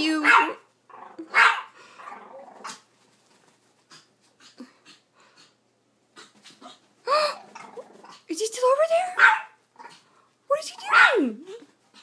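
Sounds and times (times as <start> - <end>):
small dog barking: 0.1 - 2.8, 9.1 - 10.0, 10.8 - 11.4.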